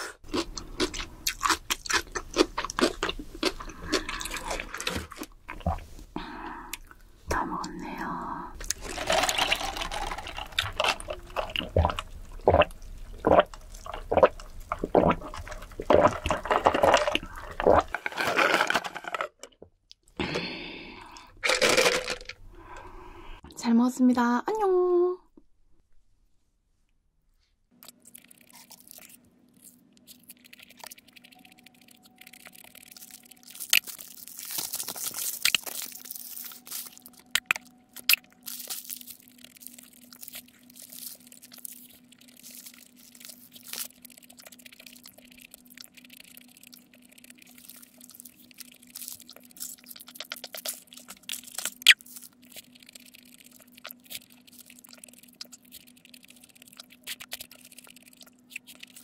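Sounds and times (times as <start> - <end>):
chewing and wet mouth sounds: 0.1 - 18.0, 27.8 - 59.0
steady low hum: 0.2 - 18.0
paper wrapper crinkling: 8.6 - 12.0, 15.4 - 19.5, 21.4 - 22.4, 27.9 - 59.0.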